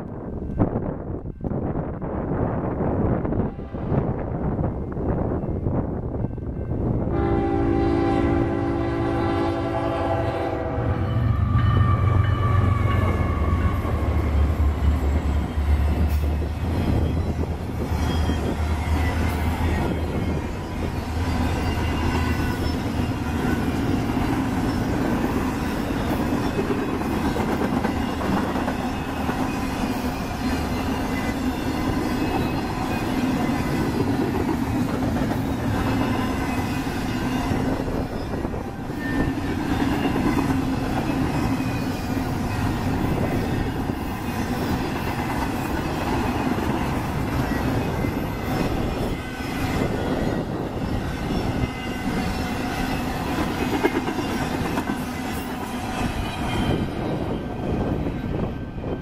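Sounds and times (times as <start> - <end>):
steel wheels rolling on rail: 0.0 - 59.0
high-pitched wheel squeal: 11.1 - 27.1, 35.4 - 58.7.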